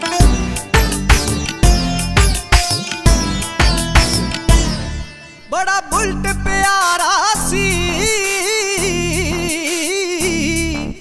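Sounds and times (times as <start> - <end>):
steady drum beat: 0.0 - 5.1
sustained chords: 0.0 - 6.6.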